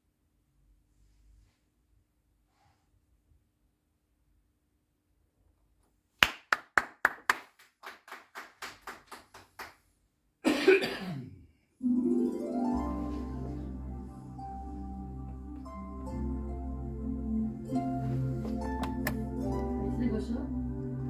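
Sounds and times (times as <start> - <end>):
hand clapping: 6.2 - 9.9, 18.4 - 19.4
calm music with mallet tones: 11.8 - 21.0
low steady drone: 12.8 - 21.0.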